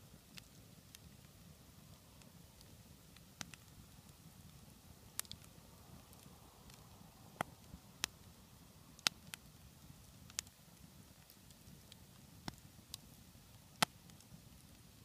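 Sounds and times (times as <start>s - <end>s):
campfire crackling and popping: 0.0s - 15.0s.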